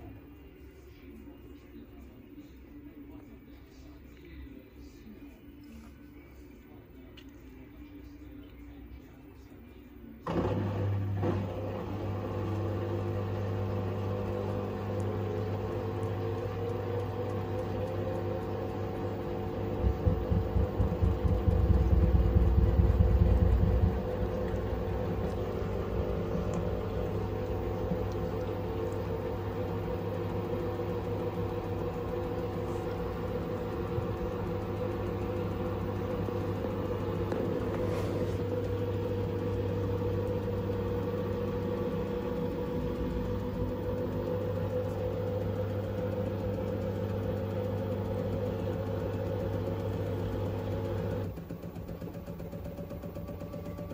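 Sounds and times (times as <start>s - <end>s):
washing machine spinning: 10.2s - 53.9s.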